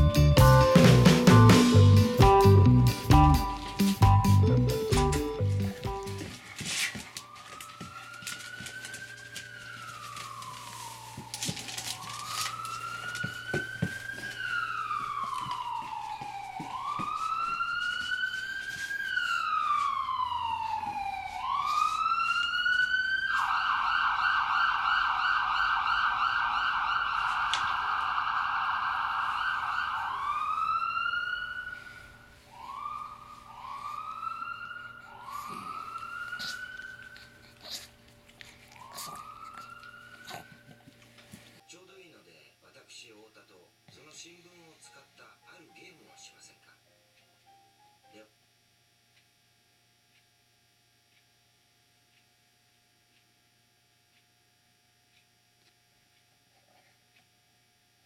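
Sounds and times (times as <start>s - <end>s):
police siren wailing: 0.0s - 41.6s.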